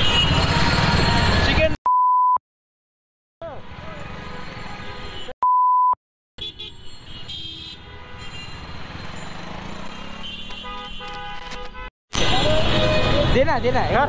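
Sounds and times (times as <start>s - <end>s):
street traffic noise: 0.0s - 1.8s, 3.4s - 5.4s, 6.4s - 14.0s
vehicle horns tooting: 6.4s - 8.7s, 9.9s - 13.4s.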